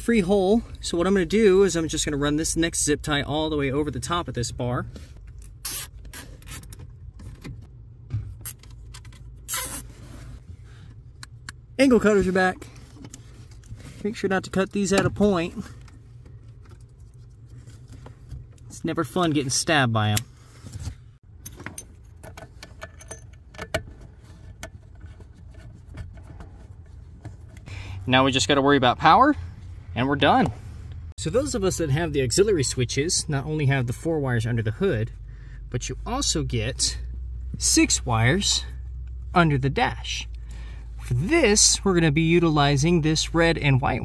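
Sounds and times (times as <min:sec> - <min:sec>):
zip tie zipping rasp: 0:09.5 - 0:10.1.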